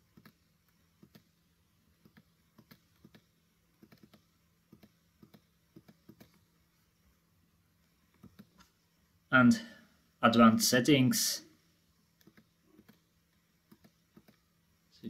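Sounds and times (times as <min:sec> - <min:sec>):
computer mouse clicks: 0:00.0 - 0:06.5, 0:08.1 - 0:08.8, 0:12.2 - 0:14.5.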